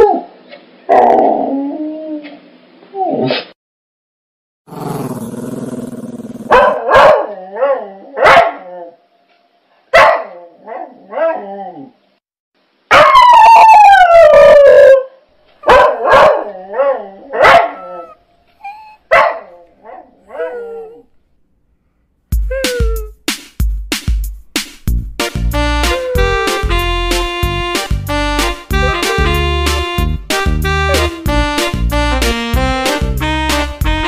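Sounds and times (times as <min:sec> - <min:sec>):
dogs barking and yipping: 0:06.5 - 0:07.3, 0:10.0 - 0:11.4, 0:15.6 - 0:21.0, 0:28.7 - 0:29.5
dog howling: 0:13.0 - 0:19.0, 0:19.8 - 0:21.1, 0:25.9 - 0:26.7.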